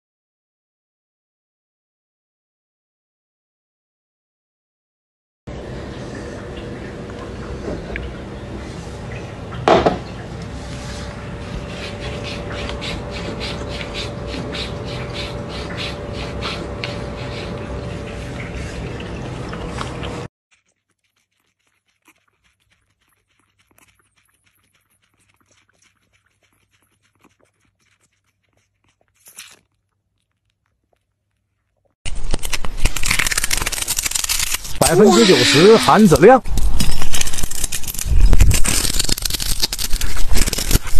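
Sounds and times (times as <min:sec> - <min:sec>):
cat lapping water: 0:06.0 - 0:29.2.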